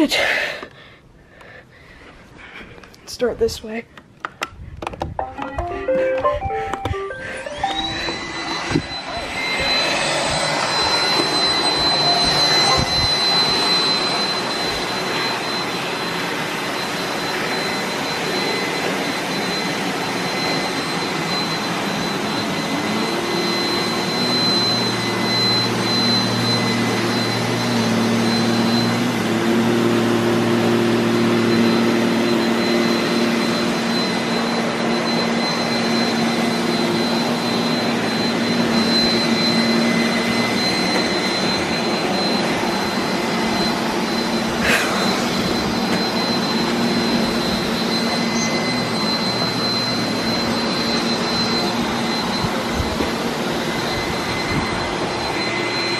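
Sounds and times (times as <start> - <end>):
low hums: 5.2 - 23.9
high whine: 5.2 - 55.9
robot vacuums whirring: 6.2 - 55.9.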